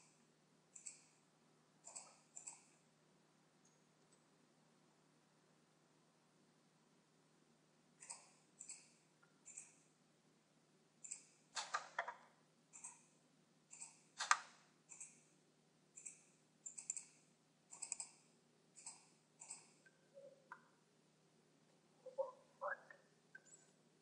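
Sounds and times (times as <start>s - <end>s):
computer mouse clicking: 0.8s - 1.2s, 1.8s - 2.8s, 11.0s - 13.1s, 13.7s - 15.2s, 16.0s - 18.2s, 18.8s - 20.6s.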